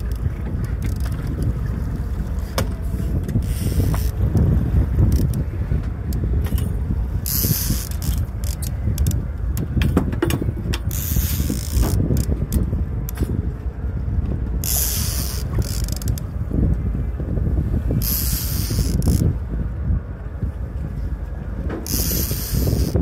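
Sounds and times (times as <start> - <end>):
low rumble of wind: 0.0 - 23.0
fishing reel clicking and ratcheting: 5.0 - 5.4, 7.2 - 9.7, 10.8 - 13.3, 14.6 - 16.2, 18.0 - 19.3, 21.8 - 23.0.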